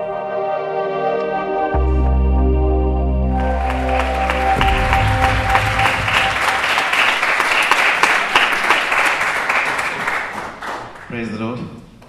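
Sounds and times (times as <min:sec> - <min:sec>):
soft intro tune: 0:00.0 - 0:07.4
crowd applauding: 0:03.4 - 0:11.4.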